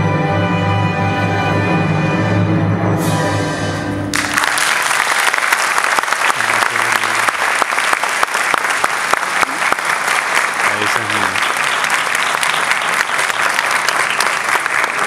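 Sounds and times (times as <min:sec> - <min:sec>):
audience applause: 0:04.1 - 0:15.0.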